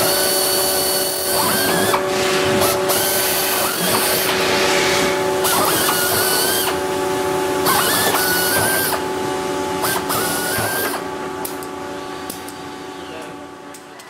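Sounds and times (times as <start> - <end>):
pneumatic drill whining: 0.0 - 6.8, 7.6 - 9.1, 9.8 - 11.0.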